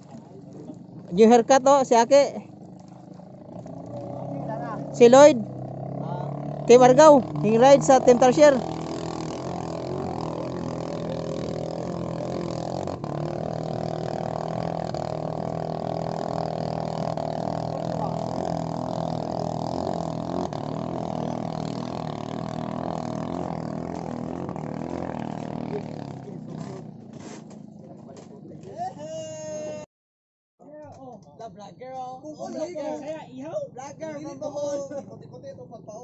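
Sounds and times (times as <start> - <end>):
racing boat engine drone: 0.0 - 28.8.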